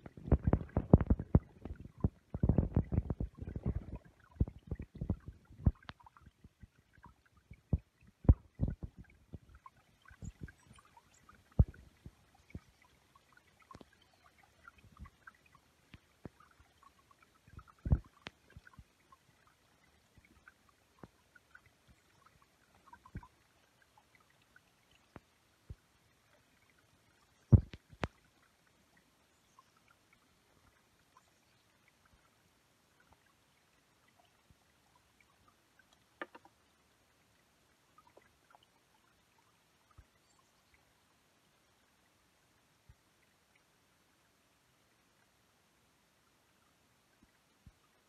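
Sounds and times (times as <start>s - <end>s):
water trickling into pond: 0.0s - 48.0s.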